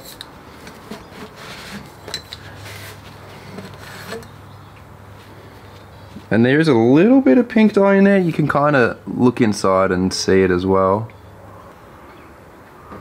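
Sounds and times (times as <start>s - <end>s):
rubbing handling noise: 0.0s - 6.5s.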